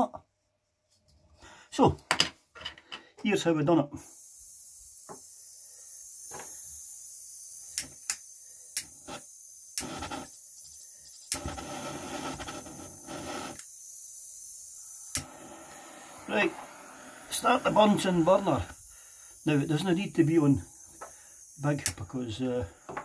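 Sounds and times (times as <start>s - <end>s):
sharp clicks: 7.7s - 8.9s, 15.1s - 15.3s, 21.8s - 22.0s
butane torch handling noise: 11.3s - 13.7s, 15.1s - 18.8s.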